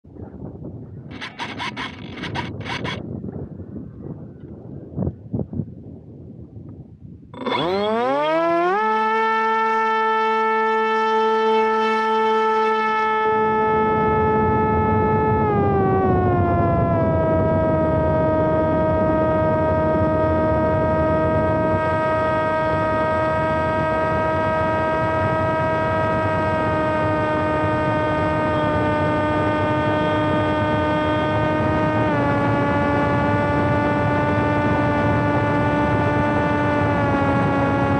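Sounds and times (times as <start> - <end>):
low rush of wind: 0.1 - 37.9
propeller motor whine: 1.1 - 3.0, 7.3 - 37.9.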